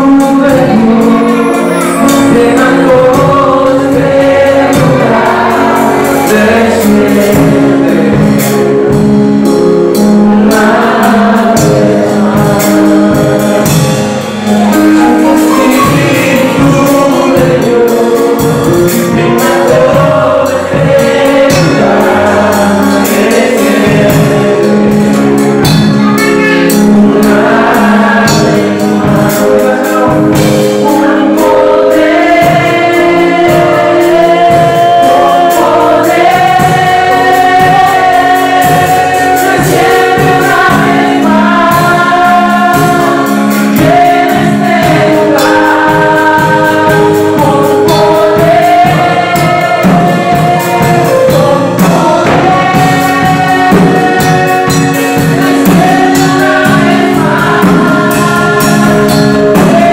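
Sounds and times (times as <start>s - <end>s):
backing singers: 0.0s - 59.9s
drums: 0.0s - 59.9s
keyboard: 0.0s - 59.9s
man singing lead: 0.0s - 59.9s.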